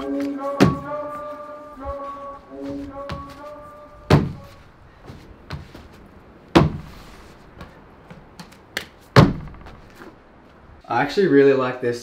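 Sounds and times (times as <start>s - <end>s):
light footfalls and scuffs: 0.2s - 10.6s
landing thuds on timber deck: 4.1s - 4.5s, 5.5s - 7.0s, 9.1s - 10.2s.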